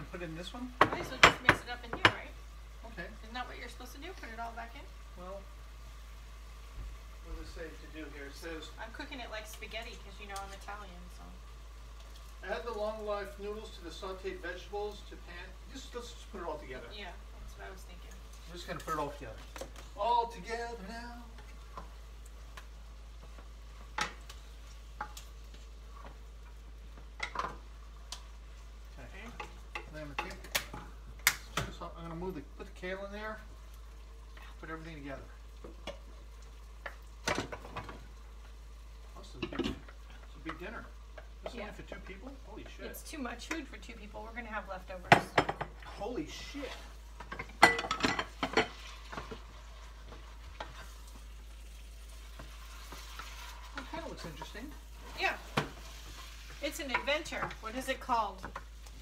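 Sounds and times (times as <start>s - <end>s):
faint steady sizzle: 0.0s - 59.0s
spoon knocking against pan: 0.8s - 2.2s
spoon stirring and scraping pan: 18.1s - 20.0s, 21.2s - 59.0s
utensil scraping a frying pan: 45.5s - 59.0s.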